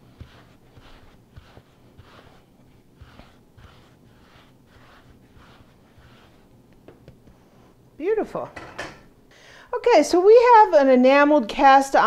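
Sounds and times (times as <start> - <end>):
hands rubbing bread dough: 0.0 - 7.8.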